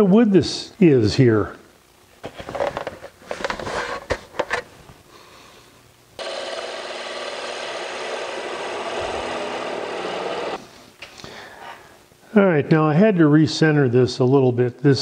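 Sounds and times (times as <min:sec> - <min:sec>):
lathe tool scraping wood: 0:06.2 - 0:10.6.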